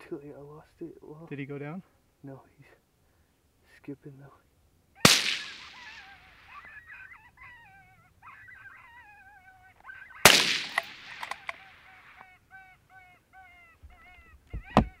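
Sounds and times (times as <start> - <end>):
rifle shots echoing: 5.0 - 6.5, 10.2 - 12.2
high wavering yipping calls: 5.0 - 15.0.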